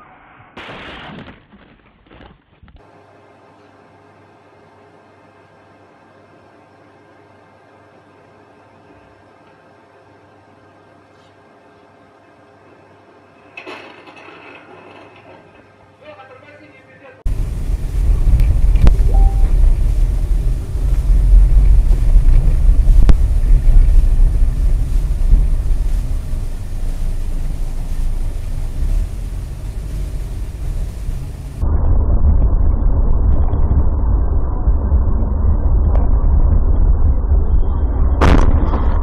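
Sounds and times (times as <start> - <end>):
car driving rumble: 17.3 - 31.6.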